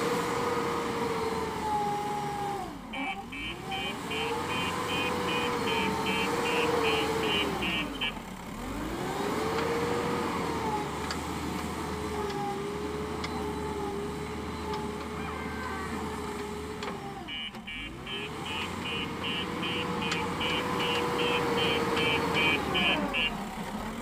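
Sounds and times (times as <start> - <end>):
diesel engine running: 0.0 - 24.0
reversing alarm beeping: 2.9 - 8.2, 17.3 - 23.4.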